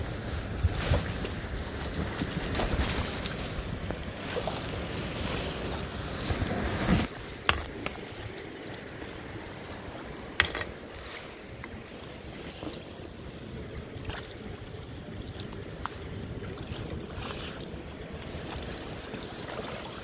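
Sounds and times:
wind on microphone: 0.0s - 8.4s
river water washing against rocks: 0.0s - 20.0s.

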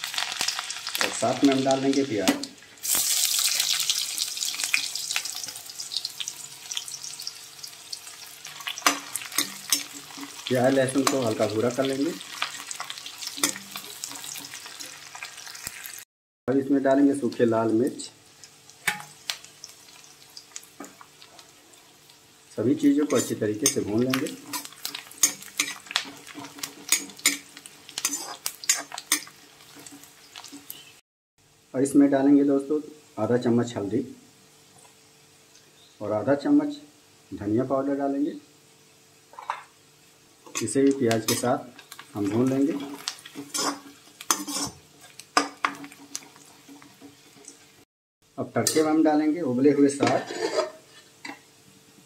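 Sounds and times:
oil crackling: 0.0s - 16.0s, 40.6s - 47.8s
onions sizzling in oil: 0.0s - 16.1s, 17.0s - 31.8s, 33.0s - 50.1s, 50.7s - 52.0s
metal ladle scraping a pan: 8.6s - 11.4s, 12.2s - 15.0s, 23.0s - 30.6s, 41.3s - 47.5s, 50.0s - 51.4s.

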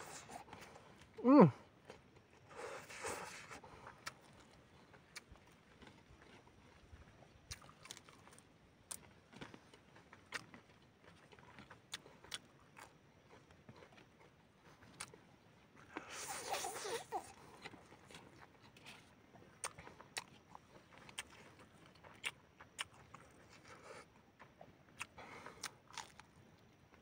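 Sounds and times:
chewing mouth clicks and smacks: 1.8s - 27.0s
noodles slurped: 2.5s - 4.3s, 15.8s - 18.2s.

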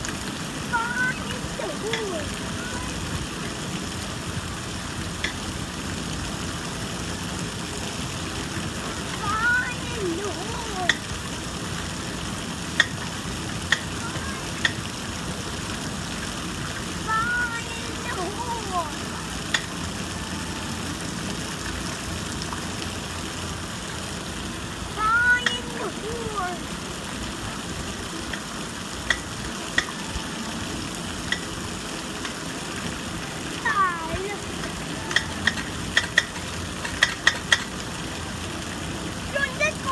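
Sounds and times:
water spraying from fountains: 0.0s - 39.9s.

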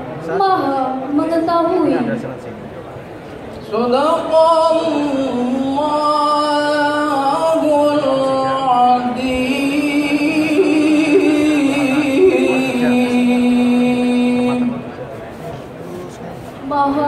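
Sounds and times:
man reciting melodically into microphone: 3.8s - 15.0s.

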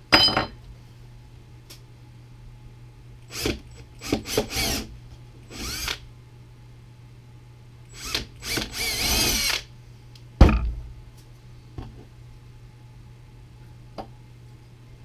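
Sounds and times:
cordless drill whining: 3.3s - 4.9s, 5.5s - 6.0s, 7.9s - 9.7s.

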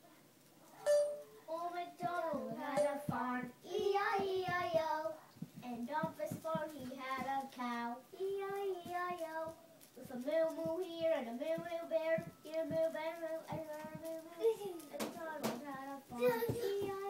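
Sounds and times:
child singing: 1.4s - 17.0s.

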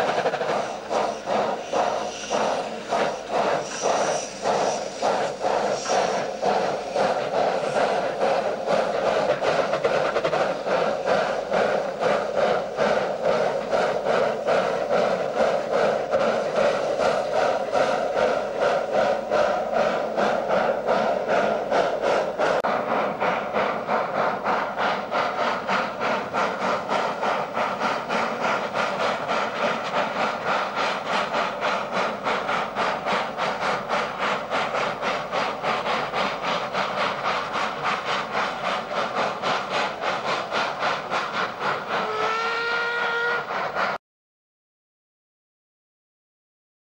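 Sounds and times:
steam hiss: 0.0s - 44.0s
steam locomotive exhaust beats: 0.0s - 44.0s
steam whistle: 42.0s - 43.8s.

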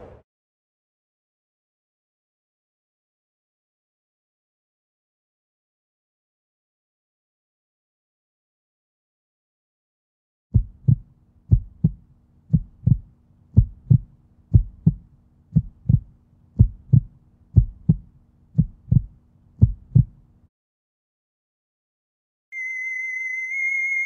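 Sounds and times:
heartbeat thumps: 10.6s - 20.2s.

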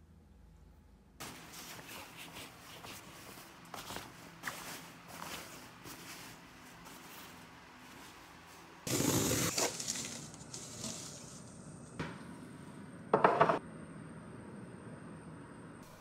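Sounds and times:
rustling: 1.2s - 11.6s.

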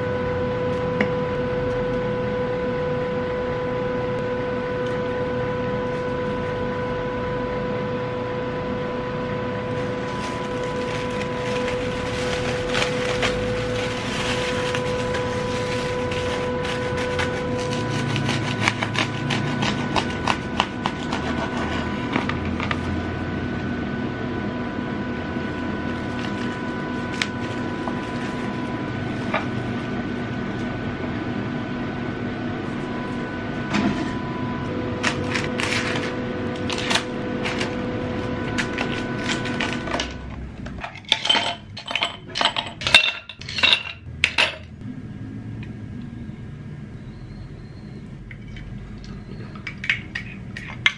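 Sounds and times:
steady hum: 0.0s - 50.9s
utensils clattering on dishes: 40.8s - 44.7s.

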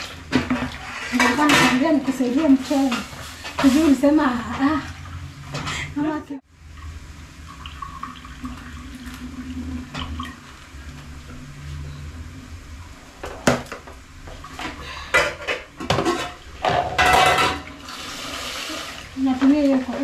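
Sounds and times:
water poured into sink: 6.8s - 11.0s, 17.6s - 19.2s.

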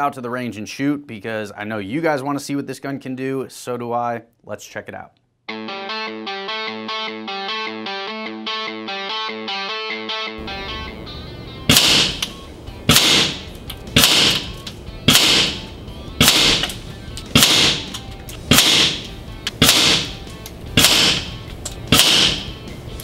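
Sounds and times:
air rifle shots: 11.7s - 12.3s, 12.9s - 22.6s.

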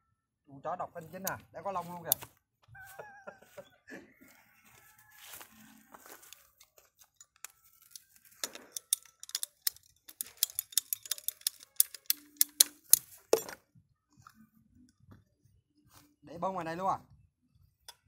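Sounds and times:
plastic pipes clicking and knocking: 6.3s - 13.6s.

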